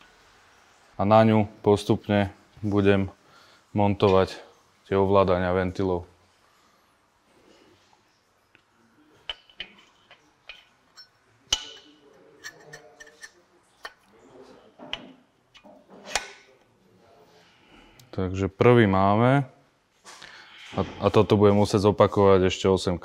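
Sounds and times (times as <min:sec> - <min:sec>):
light metallic clicks and clinks: 0:09.2 - 0:14.0.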